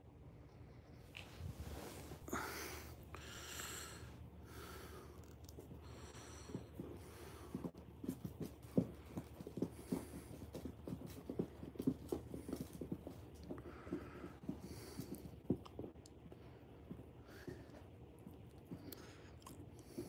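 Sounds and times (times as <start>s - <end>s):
soft thumps and scuffs: 1.2s - 2.6s, 5.6s - 18.9s.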